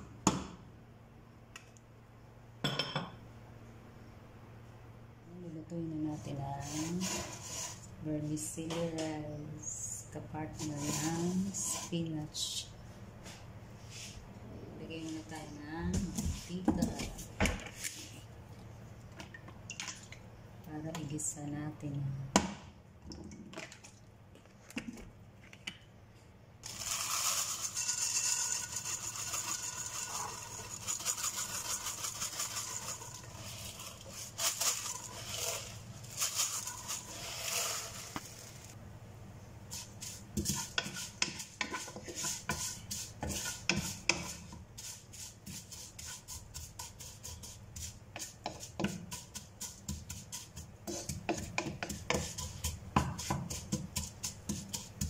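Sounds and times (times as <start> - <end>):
utensil scraping a pot: 6.1 - 9.4, 10.4 - 12.3, 26.6 - 38.8, 39.7 - 55.0
noodles sizzling in hot oil: 26.6 - 38.8.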